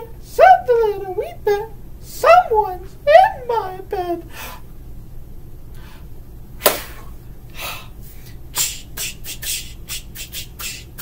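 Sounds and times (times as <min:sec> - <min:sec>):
mouth percussion smack: 0:06.6 - 0:07.0, 0:08.6 - 0:11.0.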